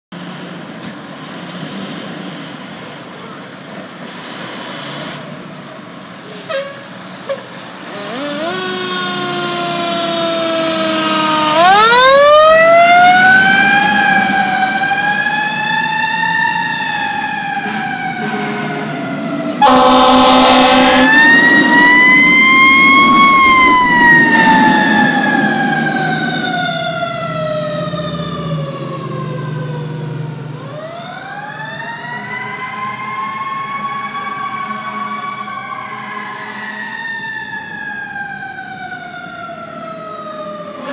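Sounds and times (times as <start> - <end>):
diesel truck engines running: 0.2 - 32.3
fire truck sirens wailing: 5.2 - 40.9
air horn blast: 17.6 - 19.0, 19.6 - 21.7.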